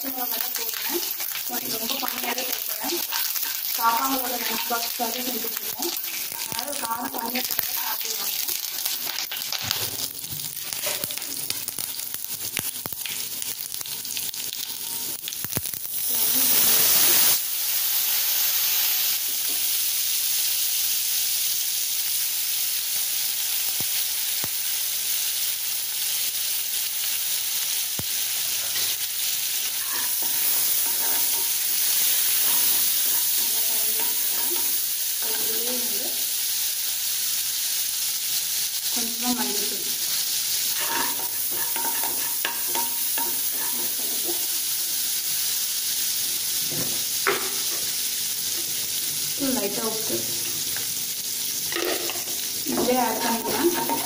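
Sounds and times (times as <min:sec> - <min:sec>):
spices sizzling in hot oil: 0:00.0 - 0:54.0
metal spoon scraping pan: 0:29.8 - 0:34.8, 0:40.7 - 0:44.4, 0:53.2 - 0:54.0.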